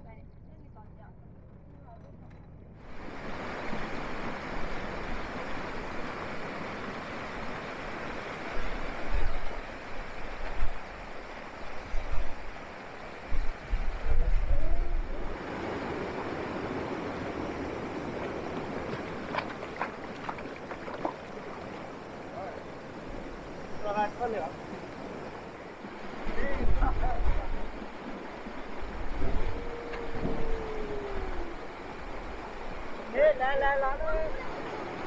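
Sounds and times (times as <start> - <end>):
wind on microphone: 2.7 - 21.7, 24.7 - 33.1
water sloshing: 15.4 - 33.0.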